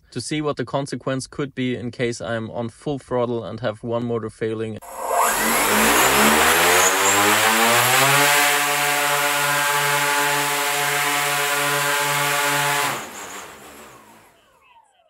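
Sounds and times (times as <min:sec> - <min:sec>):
electric motors spinning propellers: 0:04.8 - 0:14.9.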